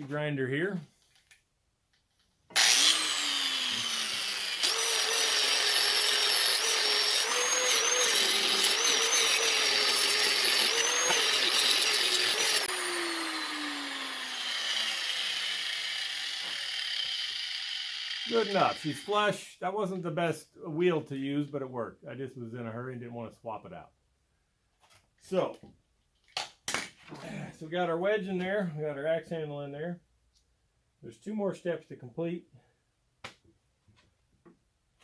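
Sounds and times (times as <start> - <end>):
grinder winding down whine: 2.5 - 19.3
angle grinder grinding wood: 2.5 - 19.4.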